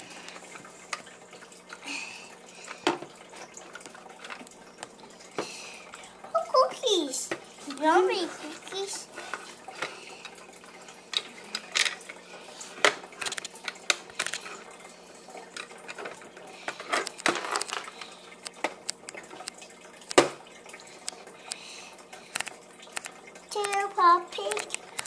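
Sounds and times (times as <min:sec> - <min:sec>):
plastic toy pieces clicking on tray: 0:22.4 - 0:25.0.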